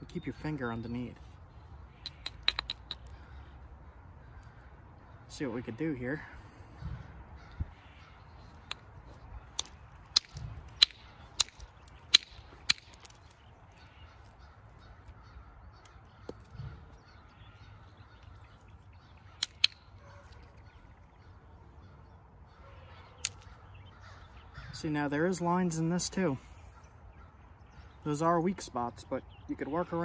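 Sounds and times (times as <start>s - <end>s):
knapping tool clicking on flint: 2.0s - 3.2s, 9.5s - 13.4s, 19.4s - 19.8s, 23.2s - 23.5s.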